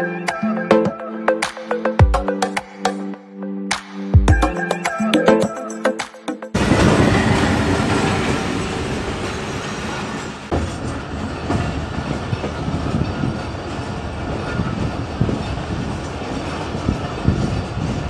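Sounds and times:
locomotive rumble: 6.6s - 18.0s
train wheel knocks: 14.4s - 18.0s.

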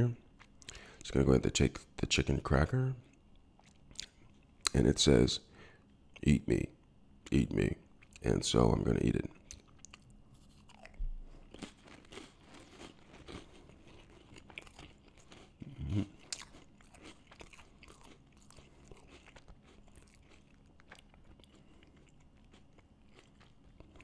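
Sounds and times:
crackers crunching: 9.4s - 24.0s.

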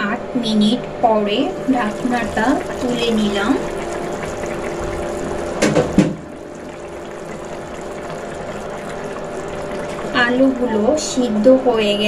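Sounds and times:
curry bubbling in pan: 1.3s - 12.0s
sharp knocks: 5.6s - 6.2s.

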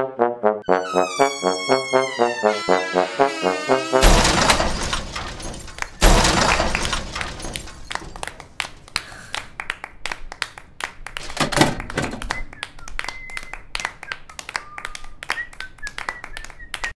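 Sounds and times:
short high squeaks: 0.7s - 6.0s
plastic object crashing on floor: 4.0s - 8.6s.

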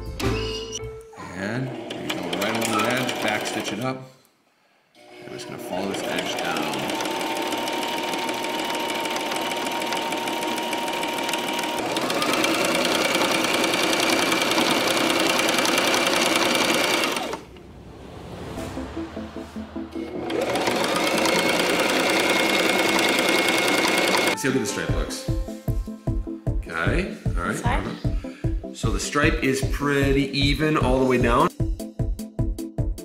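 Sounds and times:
sewing machine motor whine: 1.7s - 3.8s, 5.0s - 17.5s, 20.2s - 24.4s.

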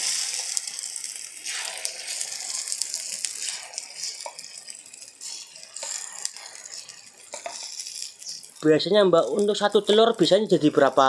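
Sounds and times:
batter sizzling in hot oil: 0.0s - 11.0s
metal spoon scraping jug and pan: 5.2s - 8.6s.

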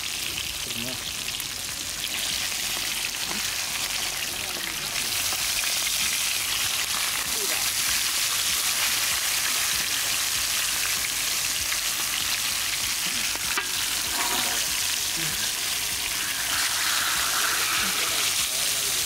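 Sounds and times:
fish sizzling in hot oil: 0.0s - 19.0s
metal spoon scraping pan: 13.5s - 14.8s, 16.2s - 18.4s.

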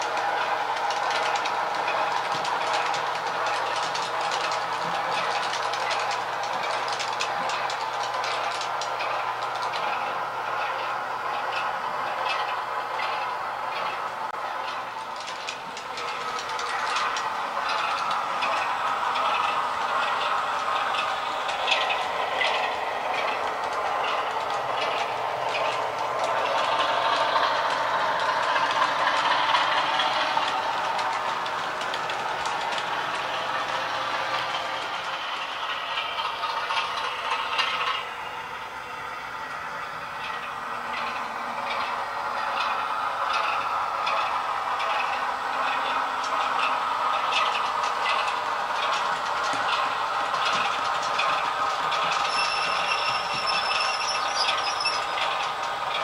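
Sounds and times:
model train running whir: 0.0s - 56.0s
wheels clicking over rail joints: 0.0s - 56.0s.

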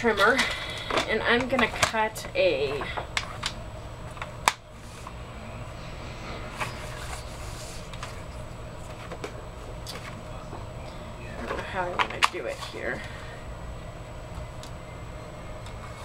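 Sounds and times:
low steady hum: 0.0s - 16.0s
paper shuffling: 6.5s - 9.3s.

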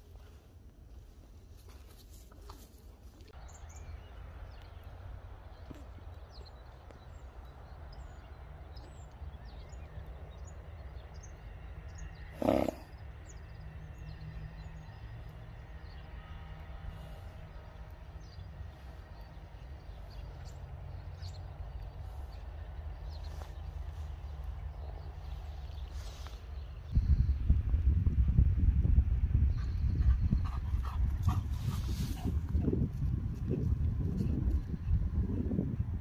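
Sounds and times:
steady low rumble: 13.2s - 36.0s.

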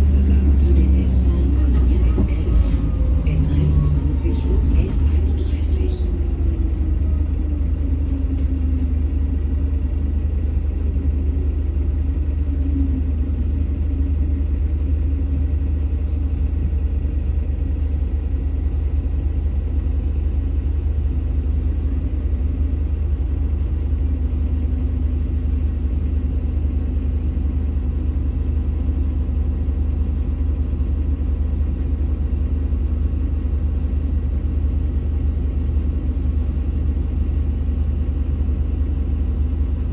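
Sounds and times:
bus diesel engine idling: 0.0s - 39.9s.

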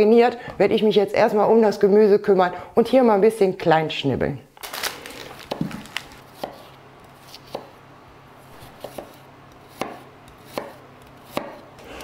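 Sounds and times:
knife chopping on wooden board: 5.5s - 7.8s, 8.5s - 11.7s.

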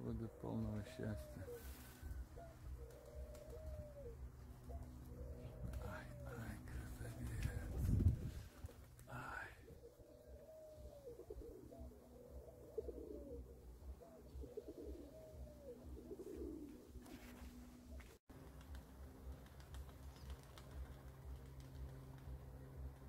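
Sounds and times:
pigeons cooing: 0.0s - 18.1s.

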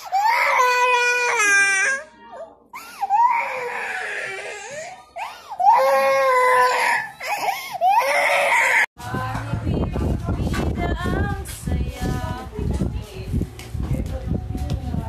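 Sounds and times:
toddler crying: 0.0s - 2.1s, 2.8s - 8.9s.

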